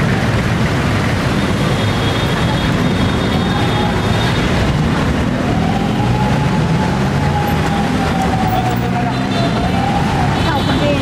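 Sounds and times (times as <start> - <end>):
street traffic engines: 0.0 - 11.0.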